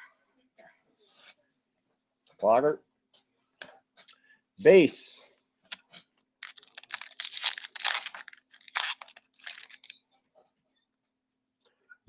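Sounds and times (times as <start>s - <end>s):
wrapper crinkling and tearing: 6.4s - 10.0s.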